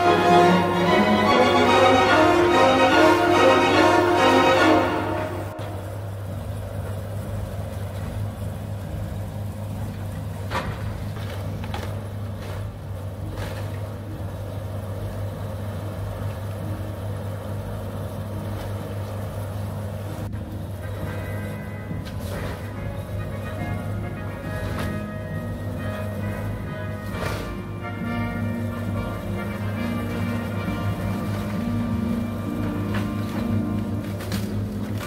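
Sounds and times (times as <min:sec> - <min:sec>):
excavator diesel engine running: 0:00.0 - 0:35.0
timber splintering and debris falling: 0:22.0 - 0:35.0.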